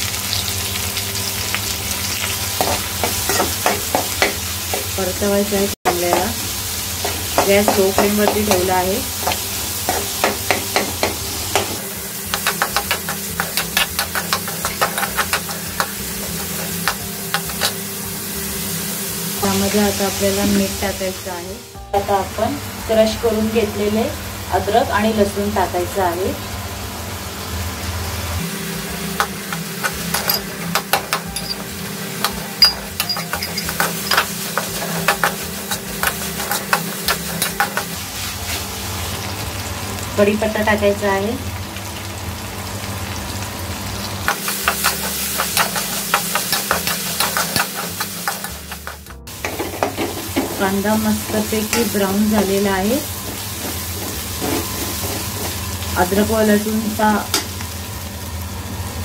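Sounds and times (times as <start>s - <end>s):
onions sizzling in oil: 0.0s - 59.0s
spoon scraping metal pan: 12.3s - 17.8s, 29.8s - 38.0s, 44.3s - 50.6s.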